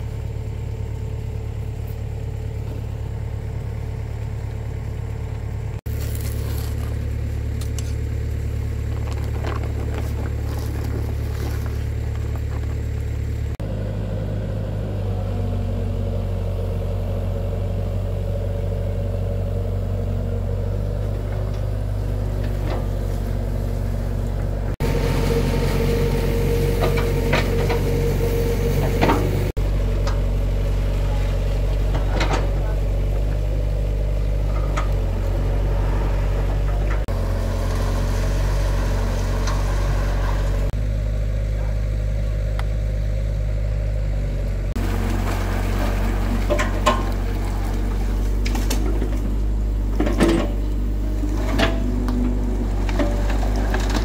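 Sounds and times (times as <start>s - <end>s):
excavator diesel engine running: 0.0s - 54.0s
crushed stone clattering: 5.9s - 13.3s.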